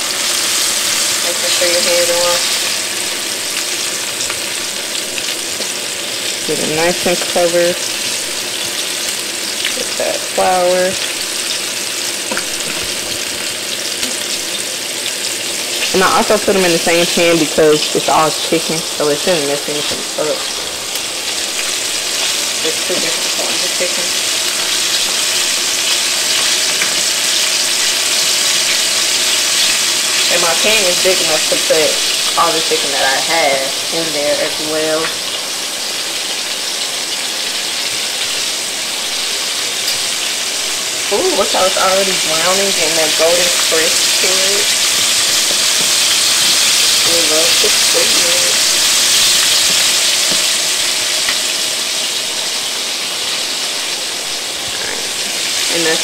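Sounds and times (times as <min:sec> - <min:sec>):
chicken deep-frying in oil: 0:00.0 - 0:56.0.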